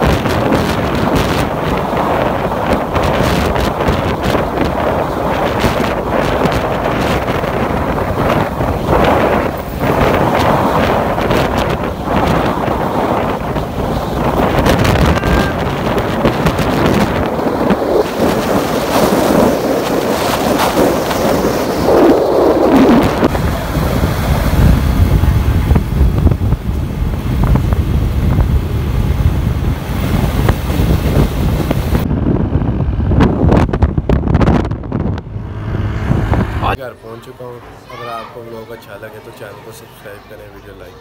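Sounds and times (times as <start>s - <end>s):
wind rushing over microphone: 0.0s - 36.8s
road noise: 0.0s - 41.0s
motorcycle engine: 32.3s - 36.8s.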